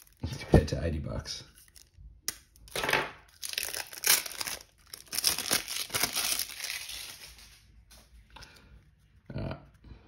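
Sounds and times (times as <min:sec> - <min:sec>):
plastic wrapping crinkling and tearing: 0:00.0 - 0:00.4, 0:01.6 - 0:08.0.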